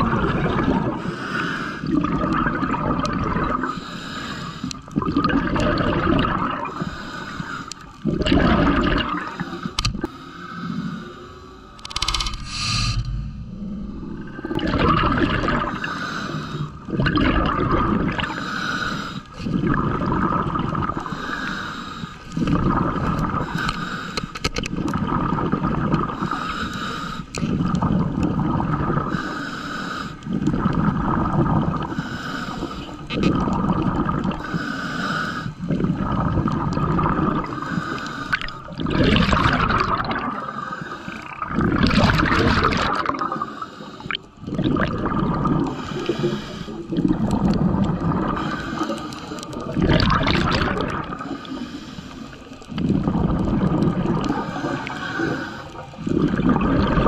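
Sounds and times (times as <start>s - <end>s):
exhaled bubbles gurgling: 0.0s - 10.3s, 12.4s - 57.0s
diver breathing through regulator: 0.8s - 2.3s, 3.4s - 5.0s, 5.6s - 17.4s, 18.0s - 24.6s, 25.5s - 44.7s, 45.3s - 57.0s.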